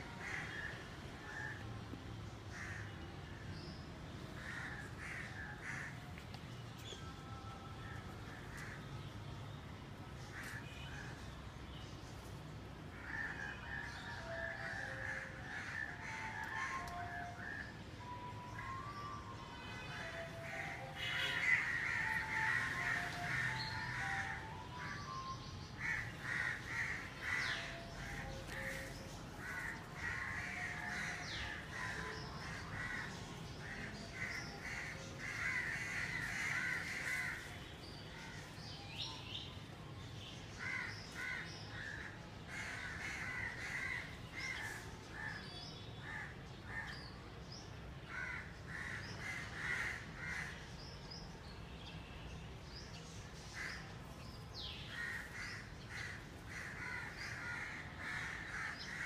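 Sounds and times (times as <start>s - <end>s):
crows cawing: 0.1s - 1.6s, 2.5s - 3.0s, 4.4s - 6.1s, 12.9s - 17.7s, 20.1s - 25.2s, 25.8s - 38.4s, 40.6s - 45.4s, 48.1s - 50.6s, 54.9s - 59.0s.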